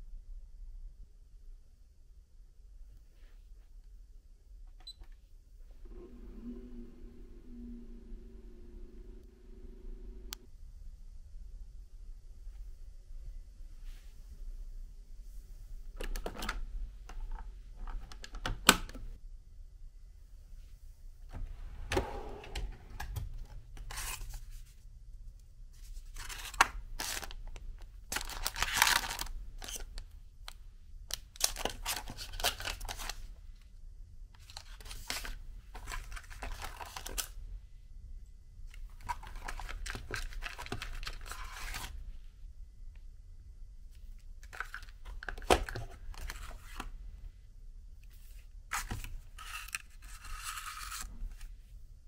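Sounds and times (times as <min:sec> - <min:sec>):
paper packaging rustling: 0:25.9 - 0:27.5, 0:28.1 - 0:30.0, 0:31.4 - 0:33.3, 0:34.4 - 0:37.4, 0:39.0 - 0:42.0, 0:48.7 - 0:51.5.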